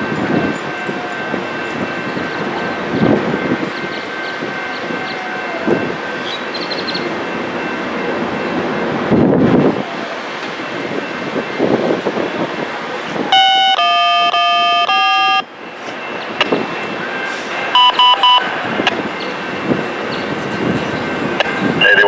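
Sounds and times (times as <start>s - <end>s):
train rumbling: 0.0s - 22.0s
train horn blasts and toots: 13.4s - 15.5s.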